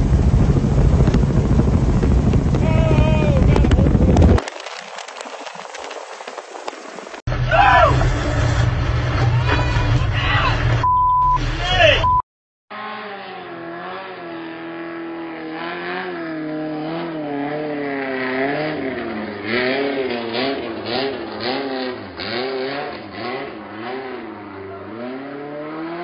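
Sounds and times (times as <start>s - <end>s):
motorboat engine revving: 0.0s - 5.2s, 12.7s - 26.0s.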